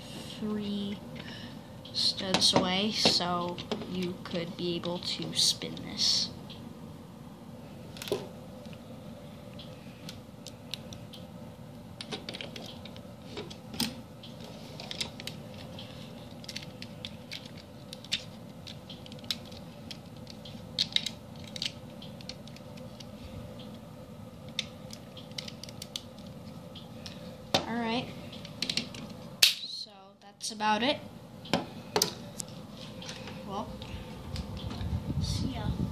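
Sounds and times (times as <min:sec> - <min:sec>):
faint steady hum: 0:00.0 - 0:35.9
plastic bricks clicking and rattling: 0:16.3 - 0:22.8.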